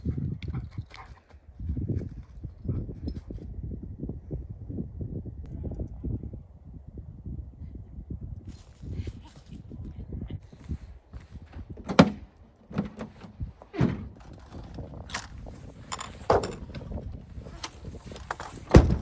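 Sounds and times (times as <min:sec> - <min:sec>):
hard clunks of folding cover: 0:11.8 - 0:14.3, 0:18.3 - 0:19.0
tonneau cover latches clicking: 0:11.8 - 0:16.9.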